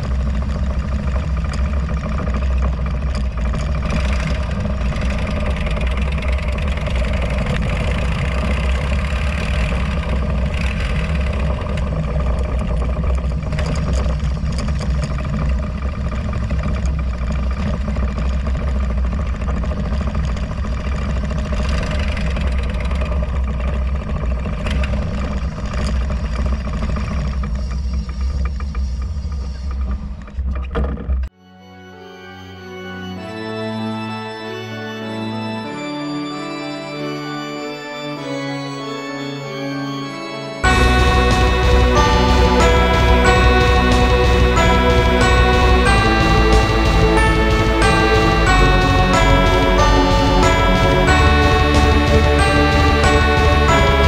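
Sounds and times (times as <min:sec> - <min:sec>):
music: 0:03.8 - 0:12.3, 0:31.4 - 0:54.0.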